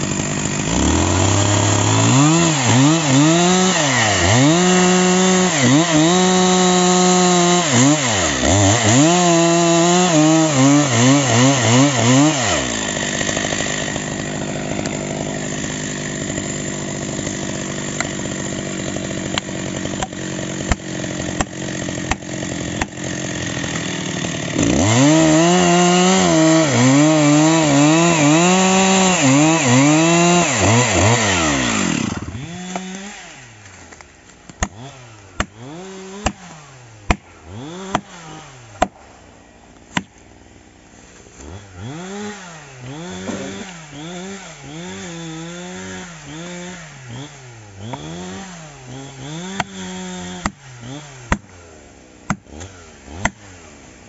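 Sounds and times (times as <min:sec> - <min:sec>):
chainsaw cutting wood: 0:00.0 - 0:54.0
wedges being hammered: 0:37.1 - 0:38.1.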